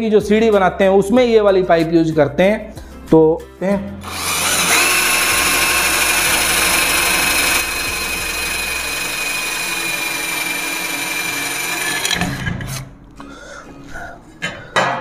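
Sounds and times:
cordless drill motor whine: 4.0s - 12.2s.

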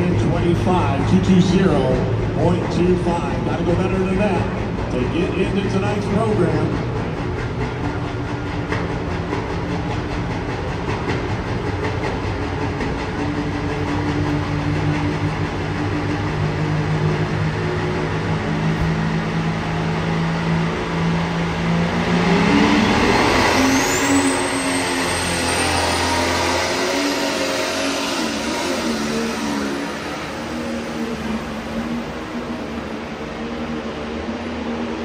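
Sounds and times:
high engine whine rising in pitch: 0.0s - 35.0s
tractor engine running and revving: 0.0s - 35.0s.

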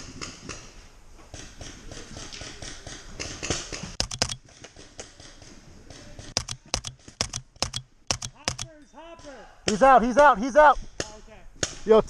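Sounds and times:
paintball markers firing: 1.3s - 8.7s.

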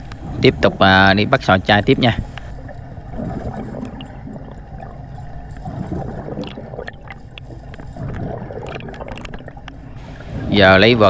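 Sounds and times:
underwater bubbling of exhaled air: 0.0s - 11.0s.

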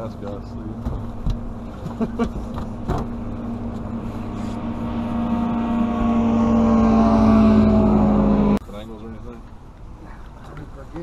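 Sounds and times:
outboard motor running: 0.0s - 8.6s.

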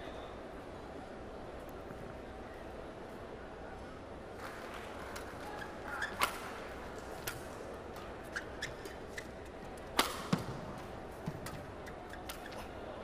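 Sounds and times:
racket hitting shuttlecock: 9.8s - 12.6s.

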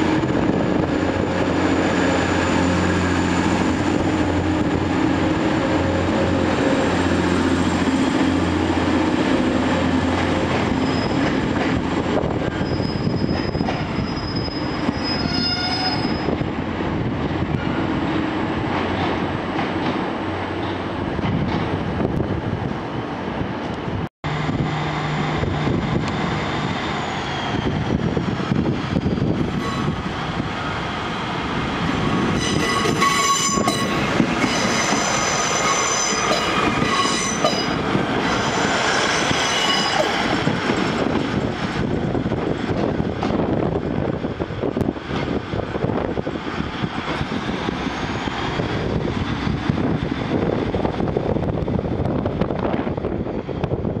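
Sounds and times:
train engine and wheels rumbling: 0.0s - 54.0s
high-pitched squeal: 12.5s - 16.4s, 32.2s - 40.5s.

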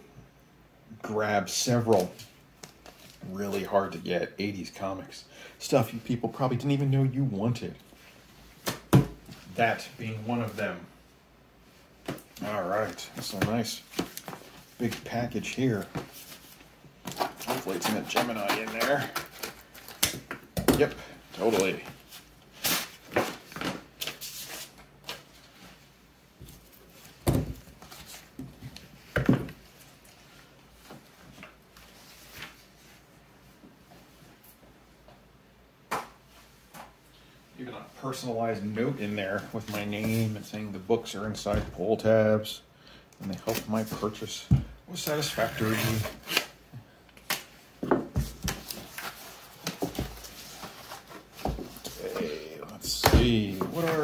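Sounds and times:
knife slitting cardboard: 17.1s - 19.5s
cardboard being handled: 47.9s - 54.0s.

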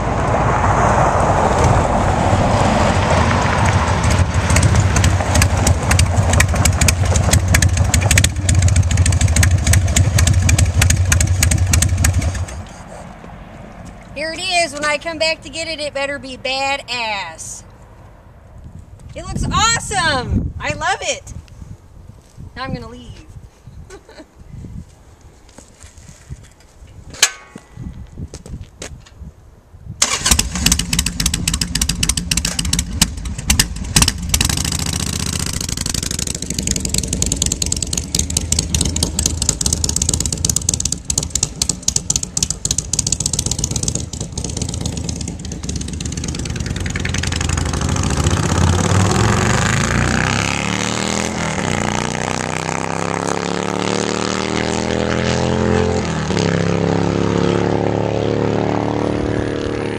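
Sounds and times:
motorcycle riding off revving: 0.0s - 13.0s, 30.0s - 59.9s
motorcycle engine starting: 3.3s - 13.0s, 30.0s - 59.9s
motorcycle engine running with throttle blips: 3.6s - 12.8s, 30.3s - 50.4s.

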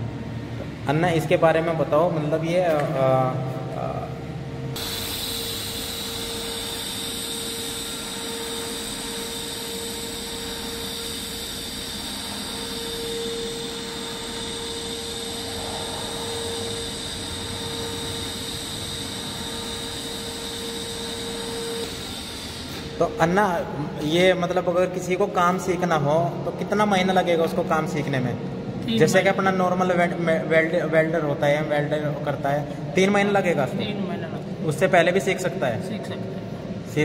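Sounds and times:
welding arc hissing: 4.8s - 23.0s.

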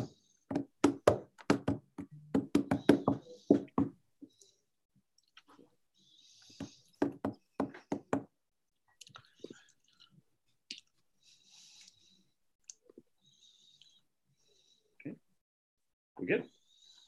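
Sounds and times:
knocks and taps: 0.0s - 4.0s, 6.6s - 8.3s.

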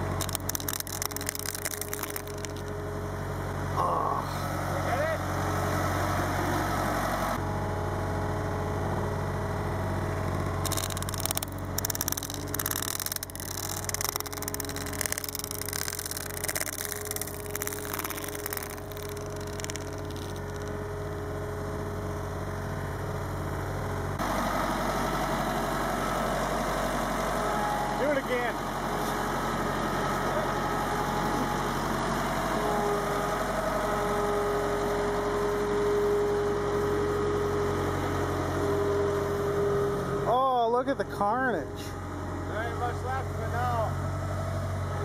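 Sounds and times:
road roller engine running: 0.0s - 45.0s
plastic crackling and crunching: 0.1s - 2.7s, 10.4s - 20.8s.

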